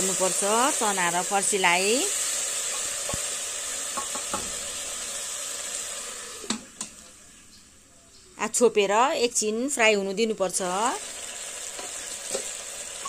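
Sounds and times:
food sizzling in hot oil: 0.0s - 7.4s, 8.5s - 13.0s
wooden spatula knocking pot: 4.0s - 4.6s.

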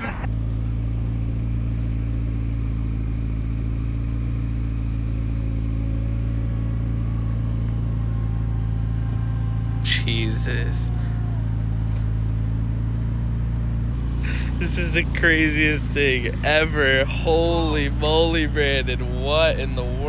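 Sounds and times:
car engine idling: 0.0s - 20.0s.

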